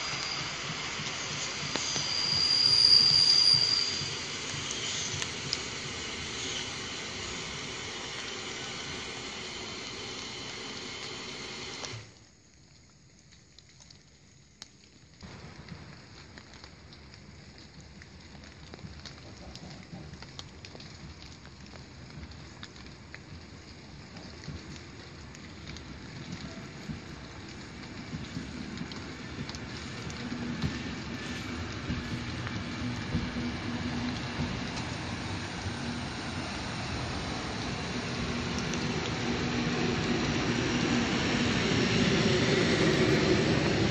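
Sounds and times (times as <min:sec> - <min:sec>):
electric train approaching on rails: 0:00.0 - 0:12.2, 0:19.6 - 0:43.9
rain: 0:00.0 - 0:43.9
small ticks: 0:12.2 - 0:15.2.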